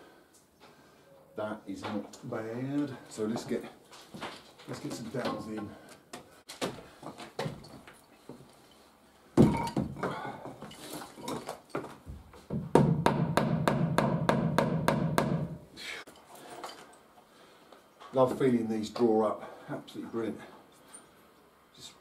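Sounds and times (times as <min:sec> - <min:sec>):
hammer knocking wooden dowels: 0:12.5 - 0:15.6.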